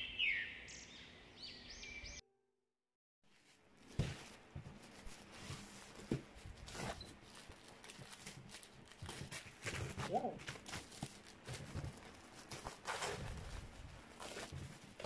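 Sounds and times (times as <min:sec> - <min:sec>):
plastic mailer crinkling and tearing: 0:03.3 - 0:15.0.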